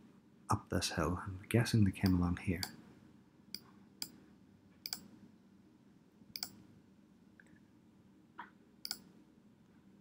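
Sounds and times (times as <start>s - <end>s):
faint steady hum: 0.0s - 10.0s
computer mouse clicking: 4.8s - 5.1s, 6.3s - 6.6s, 8.4s - 9.1s.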